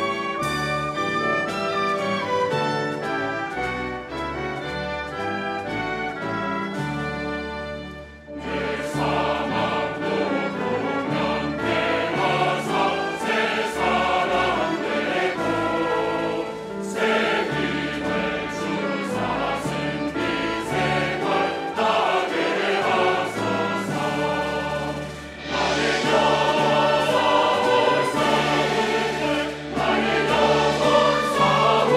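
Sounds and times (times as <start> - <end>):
string orchestra: 0.0 - 31.9
choir singing a hymn: 8.4 - 31.9.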